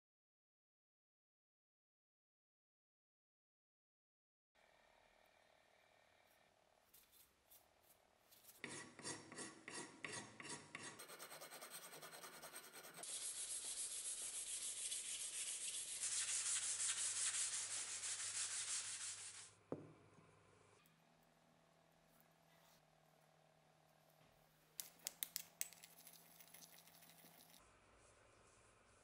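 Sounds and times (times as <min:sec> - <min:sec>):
hand sanding wood: 0:08.6 - 0:19.5.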